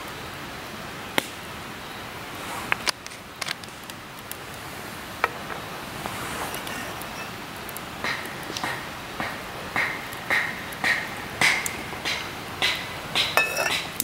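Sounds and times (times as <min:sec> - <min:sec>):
steady background hiss: 0:00.0 - 0:14.0
bottle set down on stone: 0:13.4 - 0:13.8.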